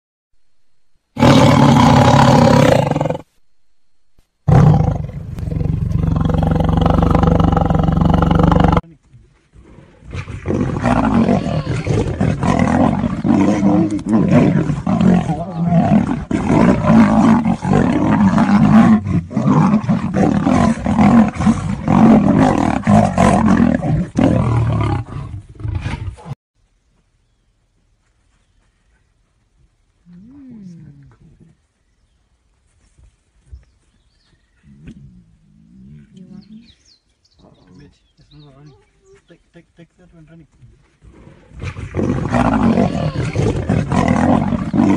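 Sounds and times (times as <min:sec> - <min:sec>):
big cats roaring and snarling: 0:01.2 - 0:03.3, 0:04.5 - 0:08.8, 0:09.5 - 0:26.4, 0:41.0 - 0:44.9.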